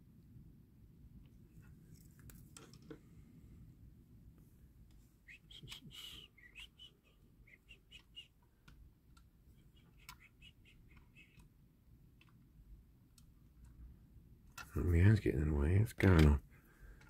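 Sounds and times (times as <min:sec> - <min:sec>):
small clicks: 0:07.8 - 0:12.5.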